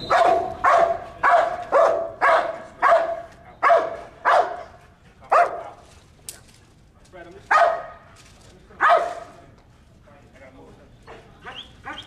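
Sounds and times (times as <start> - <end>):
dog barking: 0.1 - 5.7, 7.5 - 8.1, 8.8 - 9.2, 11.4 - 12.0.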